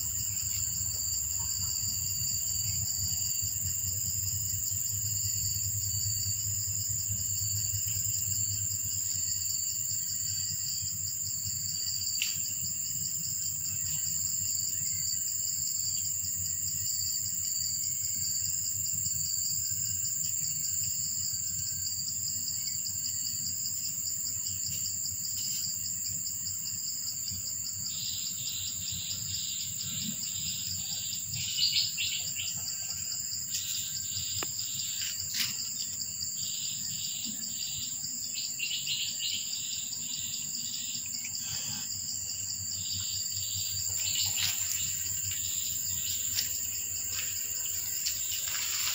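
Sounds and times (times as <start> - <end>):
pulsing insect call: 0.0 - 48.9
insects shrilling: 27.9 - 48.9.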